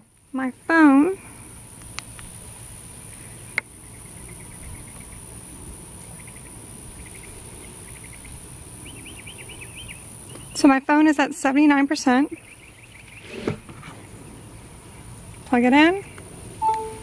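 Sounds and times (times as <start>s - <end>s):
steady high whine: 16.5s - 17.0s
chirping trills: 16.6s - 17.0s.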